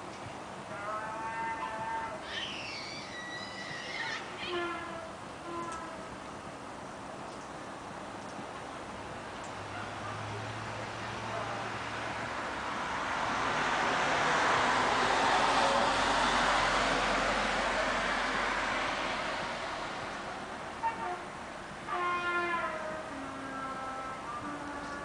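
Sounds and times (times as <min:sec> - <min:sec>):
passing vehicle tyre and engine noise: 0:08.6 - 0:20.9.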